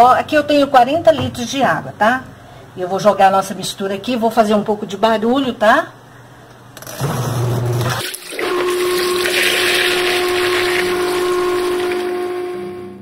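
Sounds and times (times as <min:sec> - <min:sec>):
motor hum: 0:06.8 - 0:13.0
water churning in washing machine: 0:07.8 - 0:12.6.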